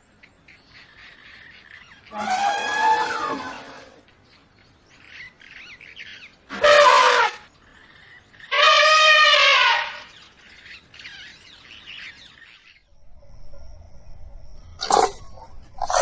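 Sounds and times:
elephant trumpeting: 2.1s - 4.0s, 6.5s - 7.5s, 8.5s - 10.1s
birds chirping faintly: 7.3s - 16.0s.

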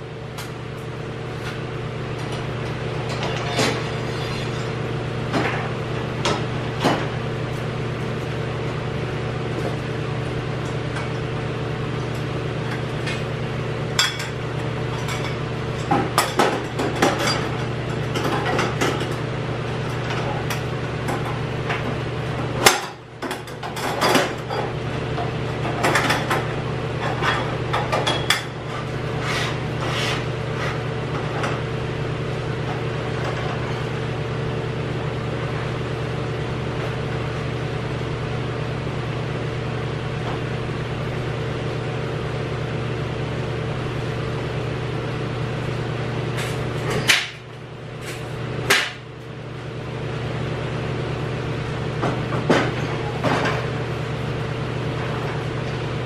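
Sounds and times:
steady mechanical hum: 0.0s - 56.0s
metal clanking and knocking: 3.0s - 4.8s.

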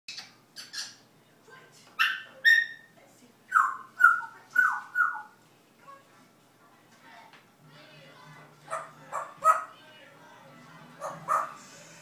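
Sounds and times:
parrot imitating dog barks: 2.0s - 2.9s, 11.0s - 11.6s.

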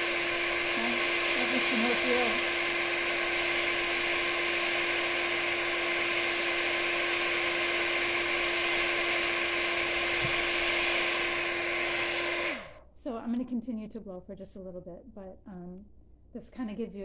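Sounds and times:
small fan whirring: 0.0s - 12.8s.

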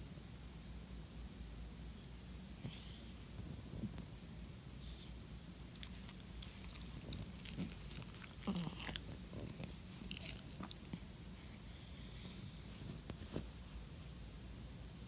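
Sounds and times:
dog snuffle: 4.8s - 13.6s.

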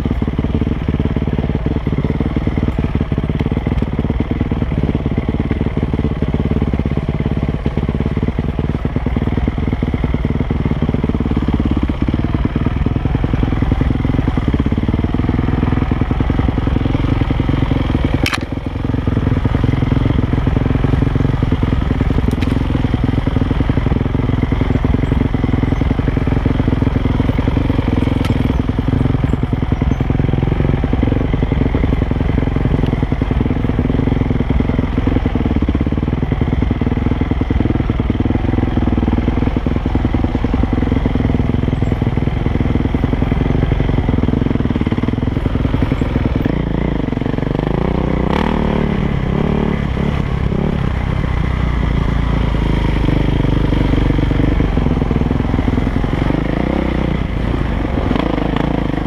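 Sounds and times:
dirt bike engine running hard: 0.0s - 59.0s.

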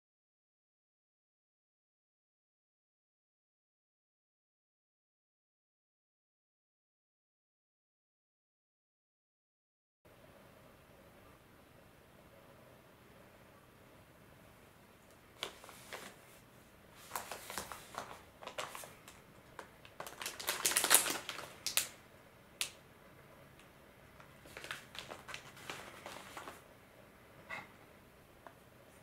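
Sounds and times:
plastic packet crinkling: 15.4s - 16.2s, 17.0s - 22.0s, 24.2s - 26.6s.

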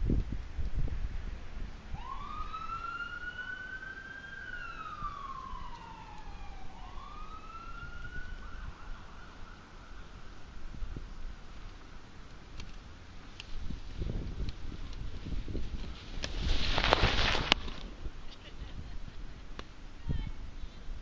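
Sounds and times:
emergency siren wailing: 1.9s - 11.2s.

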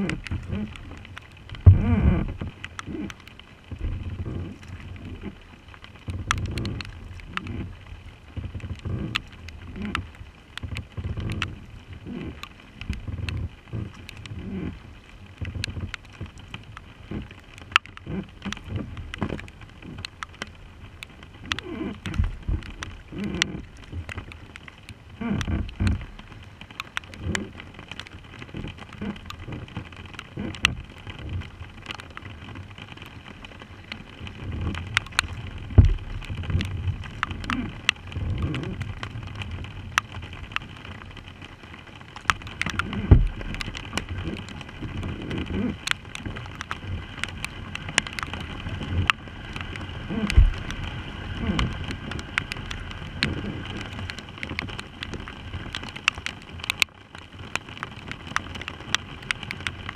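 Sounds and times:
low thumps and rushes: 0.0s - 5.4s, 15.4s - 24.5s, 25.1s - 26.5s, 28.3s - 41.6s, 42.2s - 56.8s
rain falling on water: 0.0s - 59.9s
raindrops ticking near microphone: 0.0s - 59.9s.

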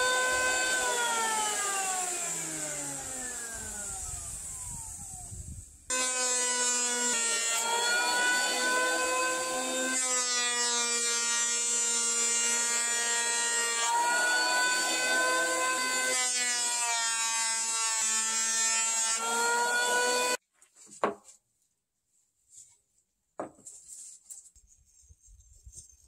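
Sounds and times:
electric planer whining: 0.0s - 20.4s.

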